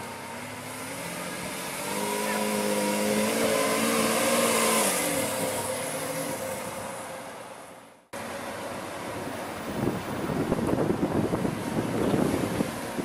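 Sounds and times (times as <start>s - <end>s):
car engine pulling away: 0.0s - 7.7s.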